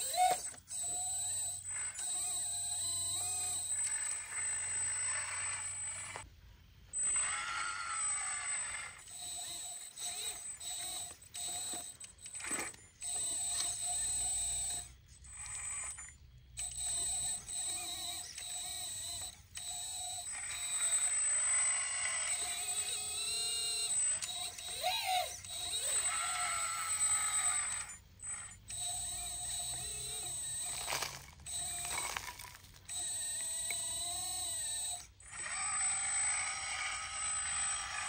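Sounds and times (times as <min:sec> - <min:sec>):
pump motor high whine: 0:00.0 - 0:06.3, 0:07.0 - 0:38.0.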